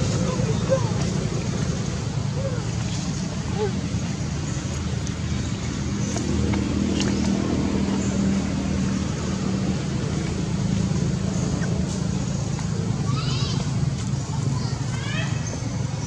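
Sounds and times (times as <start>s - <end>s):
motor engine humming: 0.0s - 16.0s.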